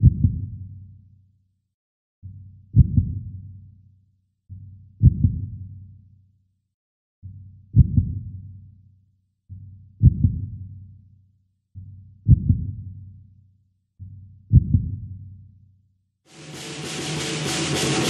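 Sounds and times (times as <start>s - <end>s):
heartbeat thumps: 0.0s - 0.6s, 2.8s - 3.2s, 5.0s - 5.6s, 7.8s - 8.2s, 10.0s - 10.6s, 12.3s - 12.8s, 14.5s - 15.1s.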